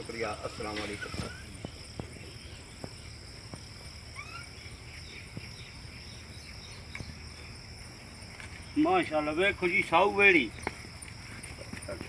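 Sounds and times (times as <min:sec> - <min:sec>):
rising bird chirps: 0:00.0 - 0:09.1
insects chirring: 0:00.0 - 0:12.0.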